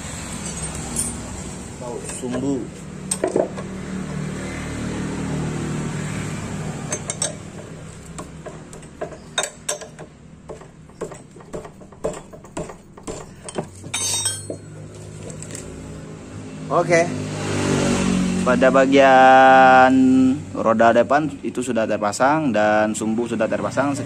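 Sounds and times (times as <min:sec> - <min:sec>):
metal wrench clinking on nut: 0:00.4 - 0:01.3, 0:06.9 - 0:14.8.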